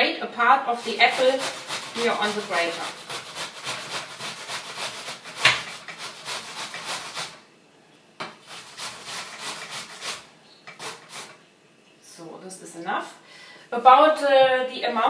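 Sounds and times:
apple grated on metal grater: 0:00.7 - 0:07.4, 0:08.4 - 0:11.4.

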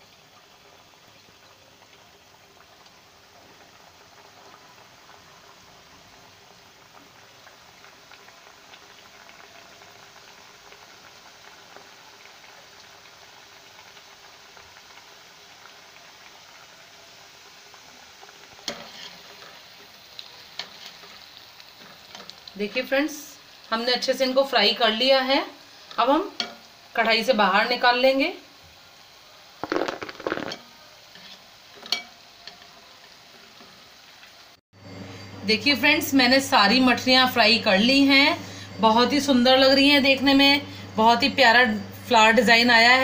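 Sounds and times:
dough sizzling in hot oil: 0:00.0 - 0:43.0.

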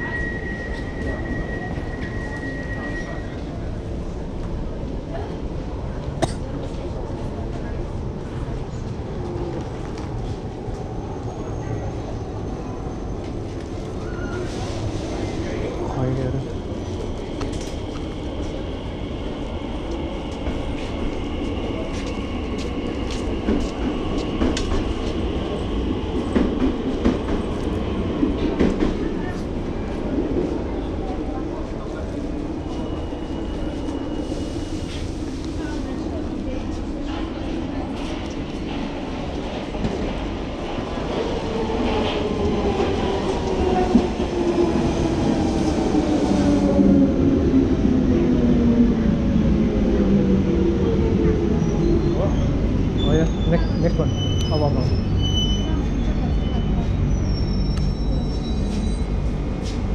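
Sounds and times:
electric train rumbling: 0:00.0 - 0:59.9
rail clicks: 0:19.8 - 0:25.3.

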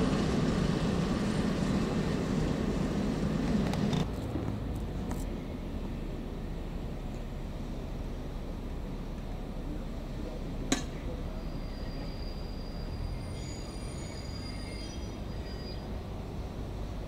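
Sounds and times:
train wheels squealing: 0:11.2 - 0:16.1.

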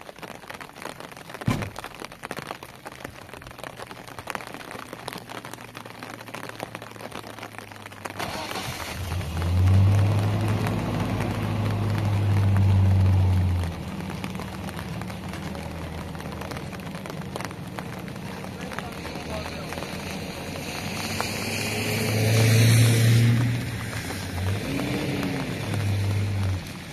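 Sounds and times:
rain pattering: 0:00.0 - 0:26.9
truck engine starting and humming: 0:08.0 - 0:26.9.

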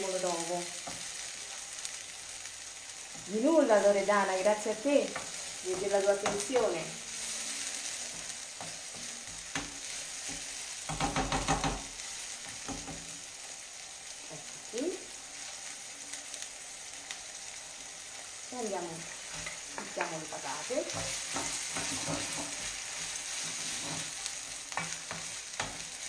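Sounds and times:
food sizzling in a frying pan: 0:00.0 - 0:26.0
wooden spoon scraping a pan: 0:04.6 - 0:13.2, 0:19.0 - 0:26.0.

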